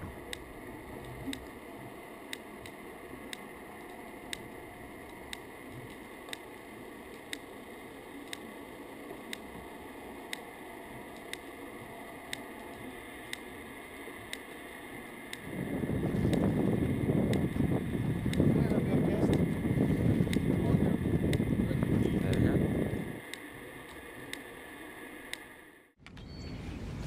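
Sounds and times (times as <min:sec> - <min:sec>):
sharp rhythmic ticks underwater: 0:00.0 - 0:25.6
steady underwater hiss: 0:00.1 - 0:22.0
rumbling wind and water noise: 0:09.5 - 0:25.0.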